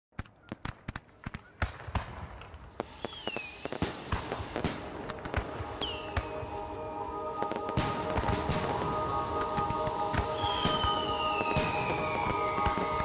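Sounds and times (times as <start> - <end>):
fireworks bangs and crackles: 0.1 - 13.0
fireworks hiss: 2.7 - 13.0
falling firework whistle: 2.8 - 4.8, 5.6 - 13.0.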